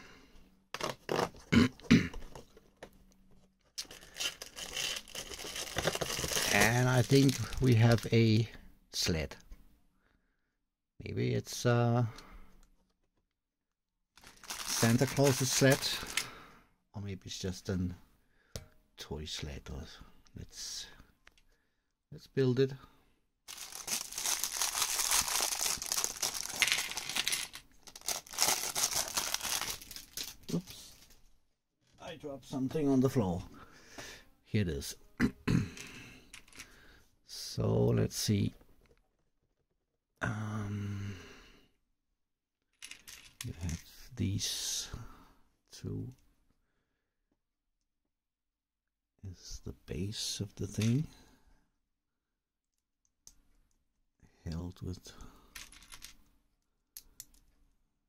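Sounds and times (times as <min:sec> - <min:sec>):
plastic bag crinkling: 0:03.8 - 0:08.1, 0:14.2 - 0:16.2, 0:23.5 - 0:31.0.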